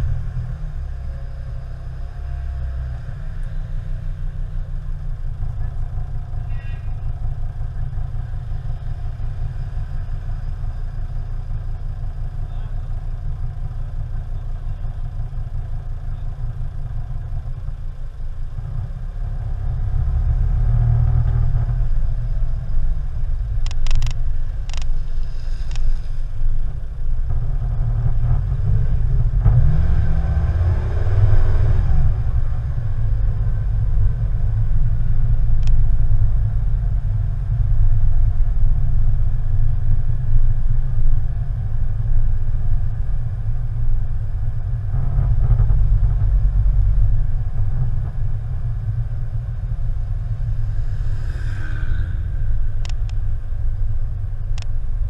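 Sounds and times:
car engine rumble: 0:00.0 - 0:55.0
sharp clicks: 0:23.6 - 0:24.9.

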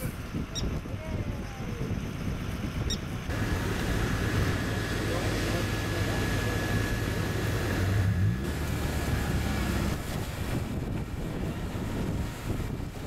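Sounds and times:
wind on microphone: 0:00.0 - 0:04.6, 0:09.2 - 0:13.0
low engine drone: 0:01.7 - 0:13.0.

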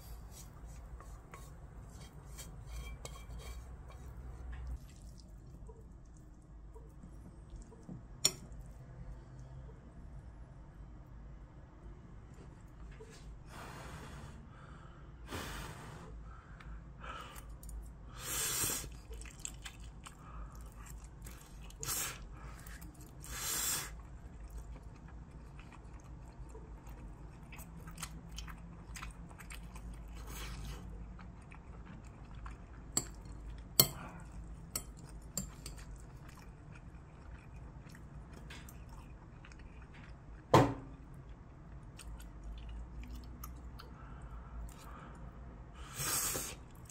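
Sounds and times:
person chewing: 0:03.9 - 0:07.9, 0:18.8 - 0:40.5, 0:41.1 - 0:45.0.

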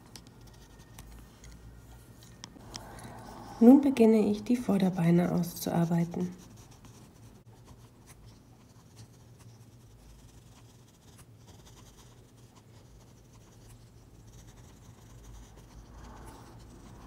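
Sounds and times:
pencil scratching on paper: 0:00.0 - 0:01.8, 0:05.3 - 0:17.0
low steady hum: 0:00.0 - 0:17.0.

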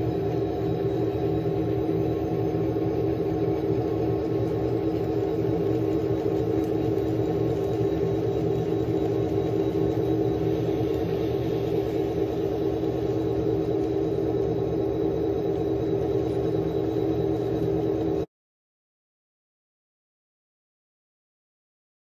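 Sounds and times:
model train motor hum: 0:01.7 - 0:14.6
wheels rolling on track: 0:04.1 - 0:13.2.

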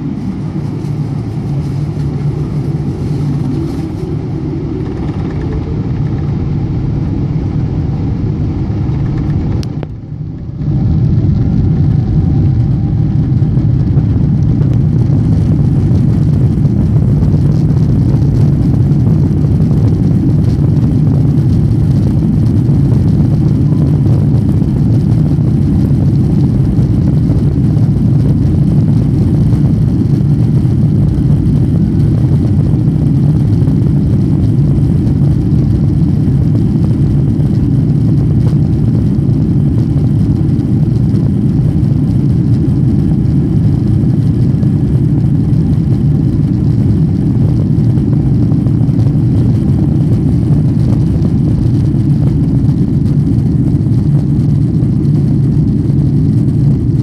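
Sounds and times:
jet engines deep rumble: 0:00.0 - 0:57.0.

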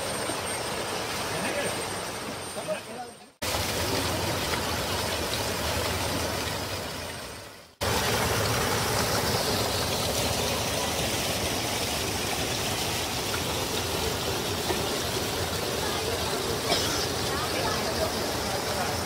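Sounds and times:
water rushing over rocks: 0:03.4 - 0:19.0.

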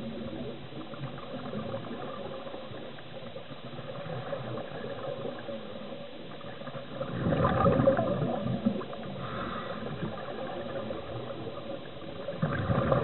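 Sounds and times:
underwater diver bubbling: 0:06.6 - 0:13.0.

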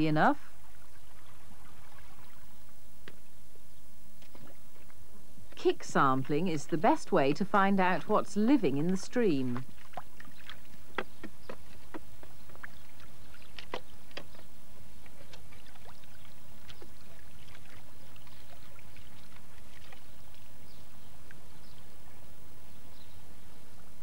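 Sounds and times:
low hum: 0:00.0 - 0:24.0
boots splashing in stream: 0:07.2 - 0:21.5
stones knocking: 0:10.8 - 0:12.8.

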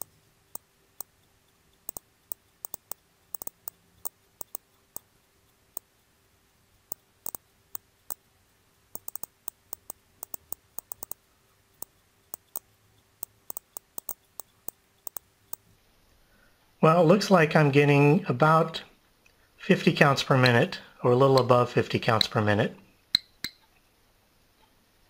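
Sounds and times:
geiger counter clicking: 0:00.0 - 0:01.1, 0:01.8 - 0:05.1, 0:06.9 - 0:08.2, 0:08.9 - 0:11.2, 0:11.8 - 0:15.7.

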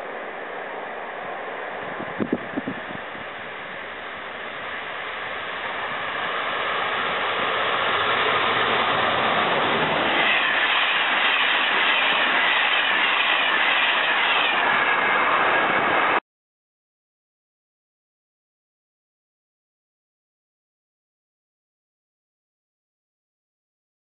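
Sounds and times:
train rushing past: 0:00.0 - 0:16.2
wheels clattering on rails: 0:01.9 - 0:16.2.

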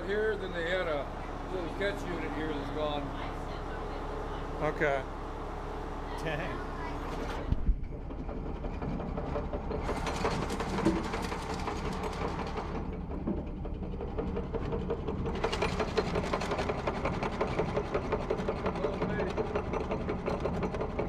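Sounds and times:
rock crusher mechanical clatter: 0:06.9 - 0:21.0.

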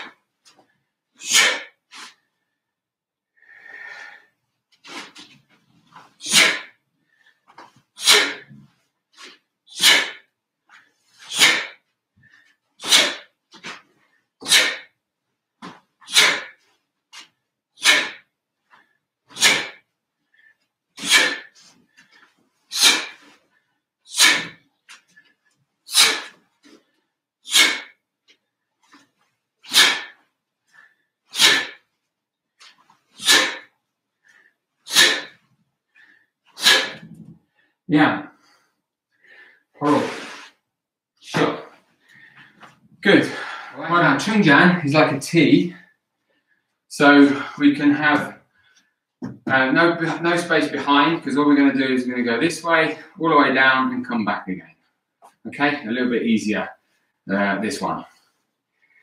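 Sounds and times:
sharp hissing exhalations: 0:01.2 - 0:02.2, 0:06.2 - 0:06.7, 0:08.0 - 0:08.5, 0:09.2 - 0:10.3, 0:11.1 - 0:11.8, 0:12.8 - 0:13.7, 0:14.4 - 0:14.9, 0:16.0 - 0:16.6, 0:17.8 - 0:18.2, 0:19.3 - 0:19.8, 0:20.4 - 0:23.4, 0:24.1 - 0:24.6, 0:25.9 - 0:26.4, 0:27.5 - 0:28.0, 0:29.6 - 0:30.2, 0:30.8 - 0:31.8, 0:33.2 - 0:33.7, 0:34.3 - 0:35.4, 0:36.0 - 0:37.2, 0:39.3 - 0:40.6
faint breaths and rustles: 0:03.5 - 0:14.4, 0:18.6 - 0:23.9, 0:41.6 - 0:43.8.

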